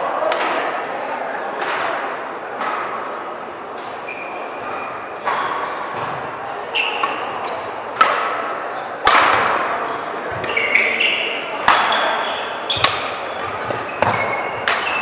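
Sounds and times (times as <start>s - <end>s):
shoes squeaking on court floor: 3.8s - 7.6s, 10.2s - 15.0s
racket hitting shuttlecock: 6.8s - 15.0s.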